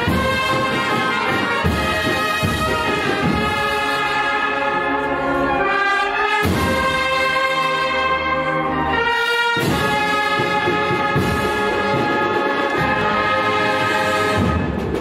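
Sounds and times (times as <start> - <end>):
brass chords: 0.0 - 15.0
drum strokes: 9.6 - 15.0.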